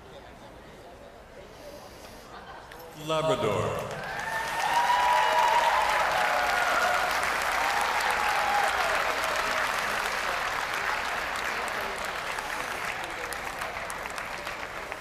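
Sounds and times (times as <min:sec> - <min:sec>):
people cheering: 0:03.0 - 0:12.2
audience applauding: 0:03.1 - 0:15.0.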